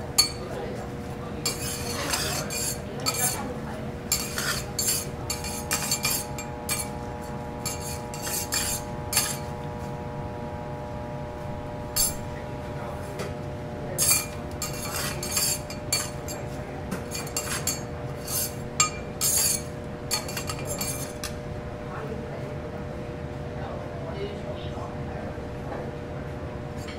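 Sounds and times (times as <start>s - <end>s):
metal spatulas scraping griddle: 1.4s - 3.5s, 4.1s - 9.6s, 12.0s - 12.2s, 14.0s - 21.3s.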